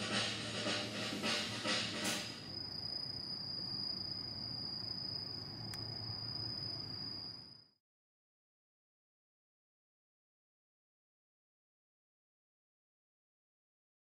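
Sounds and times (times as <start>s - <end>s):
background music: 0.0s - 2.5s
insect trilling: 2.2s - 7.7s.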